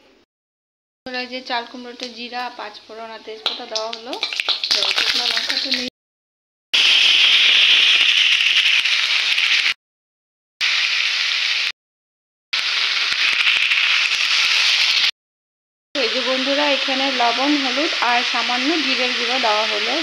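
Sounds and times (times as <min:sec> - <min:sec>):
vegetables sizzling in hot oil: 0:01.6 - 0:05.9, 0:06.8 - 0:09.8, 0:10.6 - 0:11.7, 0:12.6 - 0:15.1, 0:16.0 - 0:20.0.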